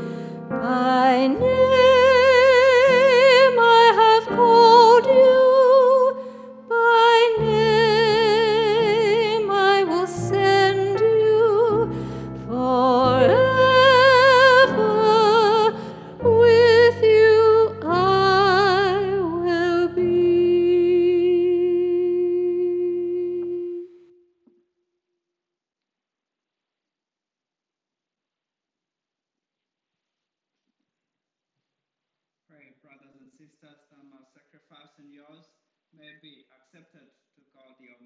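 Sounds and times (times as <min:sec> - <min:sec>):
person singing with vibrato: 0:00.0 - 0:24.0.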